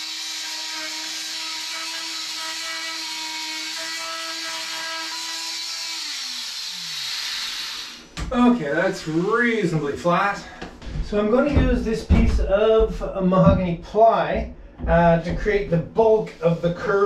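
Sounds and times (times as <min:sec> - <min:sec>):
oscillating multi-tool scraping wood: 0:00.0 - 0:08.0.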